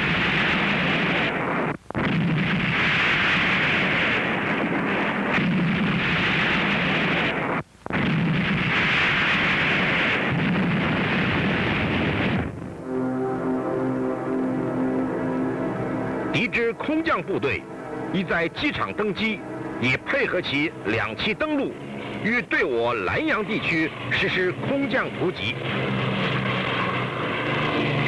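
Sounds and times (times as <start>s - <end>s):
artillery and gunfire barrage: 0.0s - 12.8s, 16.8s - 28.0s
music: 12.7s - 25.8s.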